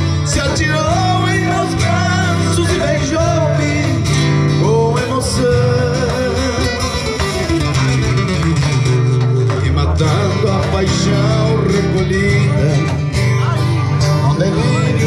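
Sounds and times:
person singing slow song: 0.0s - 6.8s, 9.6s - 13.2s, 14.0s - 15.0s
guitar chords: 0.0s - 15.0s.

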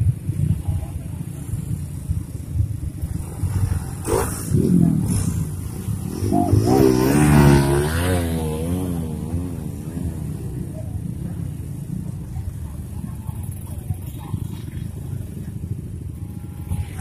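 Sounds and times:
motorcycle engines idling: 0.0s - 17.0s
motorcycle engine revving: 1.2s - 12.1s.

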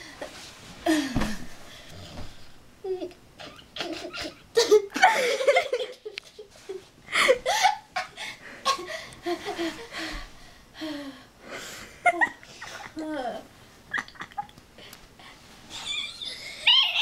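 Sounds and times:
girl laughing: 2.9s - 9.9s, 12.0s - 13.3s, 13.9s - 14.6s, 15.7s - 17.0s.

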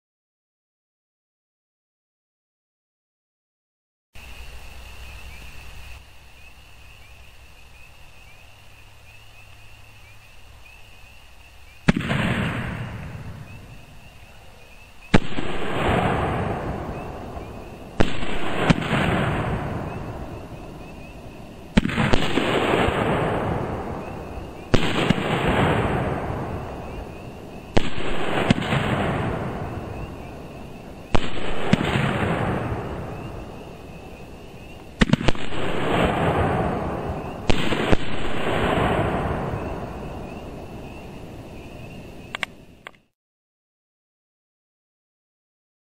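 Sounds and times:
loud firework bangs: 11.8s - 14.1s, 15.1s - 41.9s.

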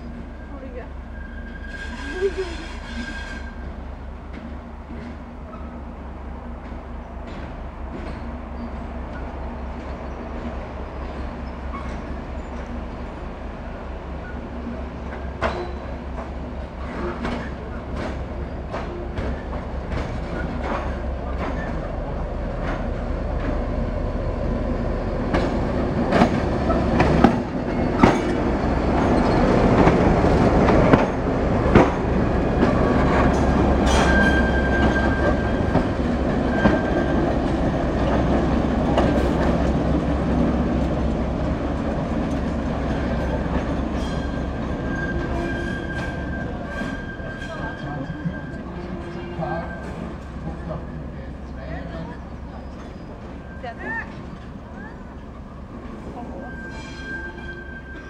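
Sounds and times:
diesel locomotive engine drone: 0.0s - 58.0s
wheel squeals: 0.4s - 3.7s, 32.9s - 37.4s, 42.8s - 50.2s, 52.4s - 58.0s
wheels clacking over rail joints: 1.8s - 58.0s.

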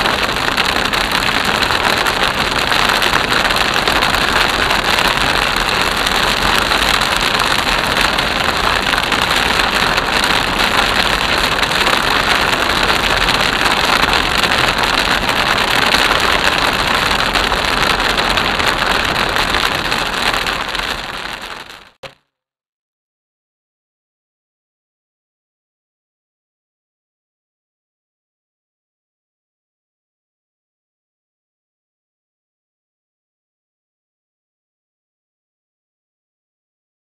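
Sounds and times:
rain hitting car roof: 0.0s - 22.1s.

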